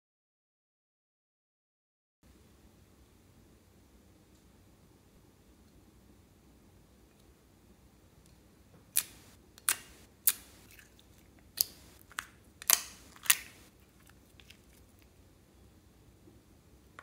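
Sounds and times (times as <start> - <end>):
wet slime squish: 8.9 - 15.1
slime popping and clicking: 9.0 - 10.7, 11.6 - 13.7.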